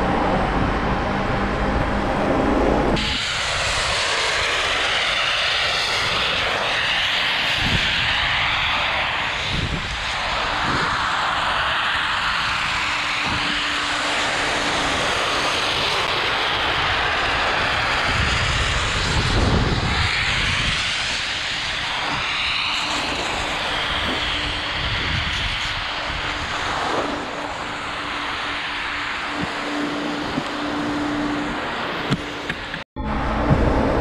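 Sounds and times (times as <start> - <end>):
wind on microphone: 0.0 - 34.0.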